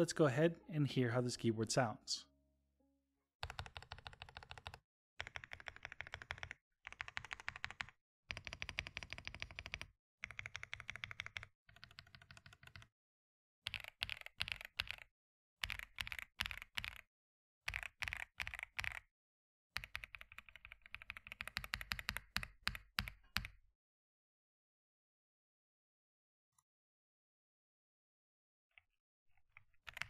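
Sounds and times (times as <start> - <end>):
mechanical keyboard typing: 3.4 - 12.9, 13.7 - 17.0, 17.7 - 19.0, 19.8 - 23.5, 29.5 - 30.0.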